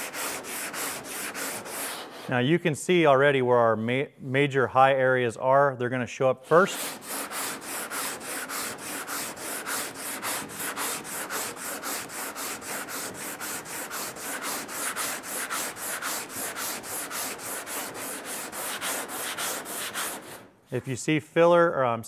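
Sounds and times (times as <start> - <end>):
sandpaper scrubbing on filler: 0.0 - 2.4, 6.5 - 20.5.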